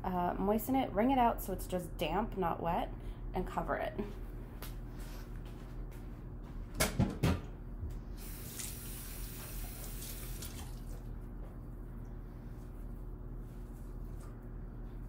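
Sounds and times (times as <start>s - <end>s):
kitchen tap running: 8.2s - 11.1s.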